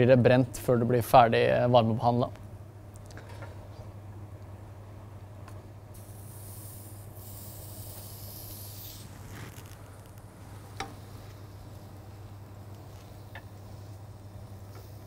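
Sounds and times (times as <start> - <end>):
steady low hum: 0.0 - 15.0
hiss on hot grill pan: 6.0 - 9.8.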